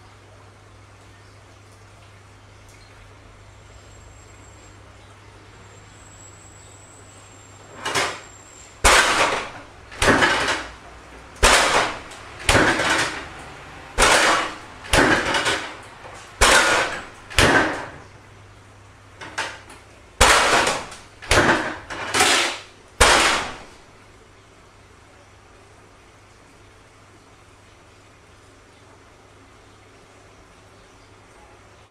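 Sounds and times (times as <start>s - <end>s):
refrigerator door banging: 7.8s - 8.2s, 8.8s - 10.8s, 11.4s - 18.1s, 19.2s - 23.8s.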